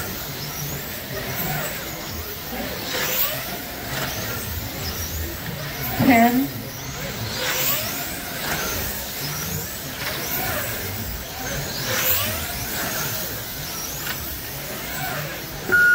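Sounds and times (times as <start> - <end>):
slot car motors whining: 0.0 - 15.9
low steady hum: 15.7 - 15.9.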